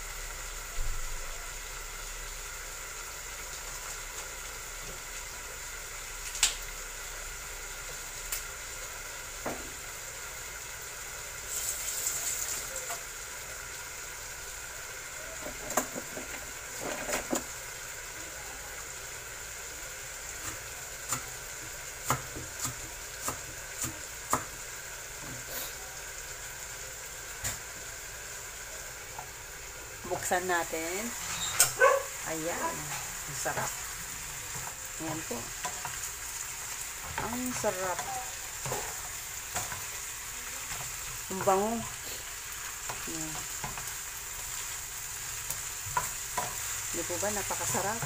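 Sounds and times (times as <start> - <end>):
chicken sizzling in frying pan: 0.0 - 48.0
oil popping and crackling: 6.1 - 6.8, 31.0 - 48.0.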